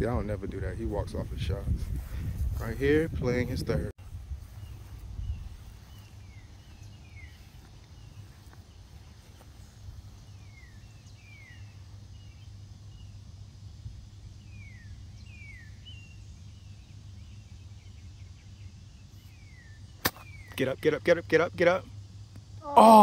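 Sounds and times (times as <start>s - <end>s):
songbird whistling: 14.4s - 16.2s.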